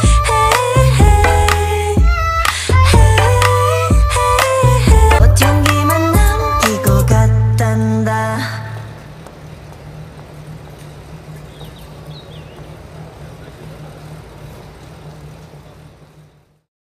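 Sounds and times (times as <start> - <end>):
low steady hum: 0.0 - 16.7.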